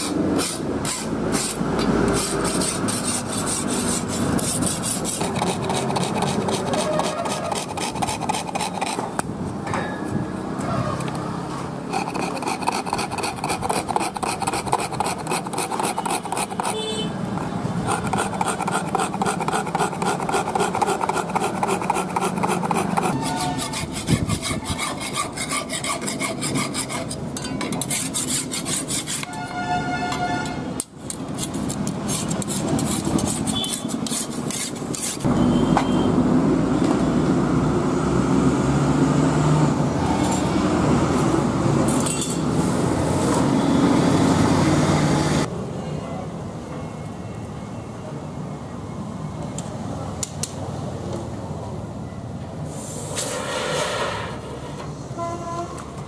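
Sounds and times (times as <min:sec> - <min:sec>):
file rasping on metal blade: 0:00.4 - 0:09.1, 0:11.9 - 0:29.4, 0:31.3 - 0:35.3.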